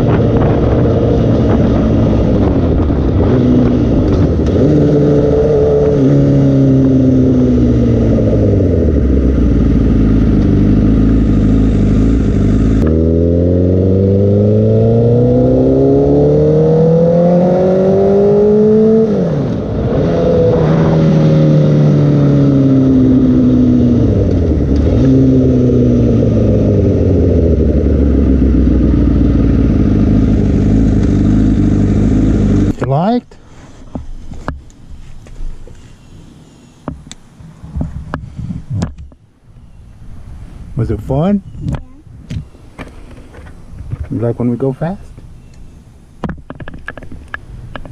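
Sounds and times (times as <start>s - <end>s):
motorcycle engine revving: 0.0s - 32.9s.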